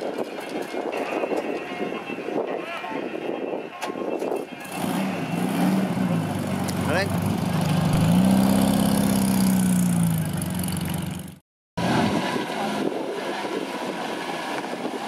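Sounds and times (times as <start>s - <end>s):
second car engine at low speed: 4.7s - 14.7s
car engine running: 5.9s - 11.4s.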